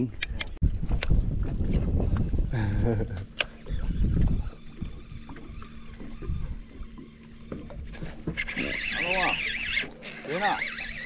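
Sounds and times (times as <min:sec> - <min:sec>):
wind buffeting microphone: 0:00.4 - 0:08.8
high rapidly cycling whir: 0:03.1 - 0:11.0.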